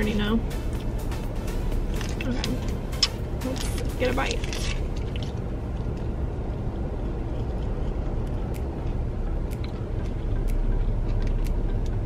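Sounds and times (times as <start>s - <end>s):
low rumble inside car: 0.0s - 12.0s
person chewing: 4.4s - 6.0s, 7.0s - 11.6s.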